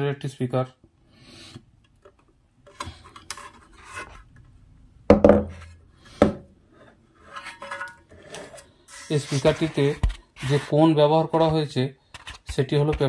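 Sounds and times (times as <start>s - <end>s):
knocks on speaker driver: 5.1s - 5.5s.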